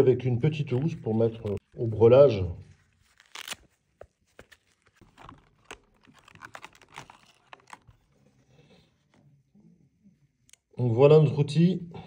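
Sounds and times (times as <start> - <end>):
plastic packaging crackling: 2.9 - 8.1.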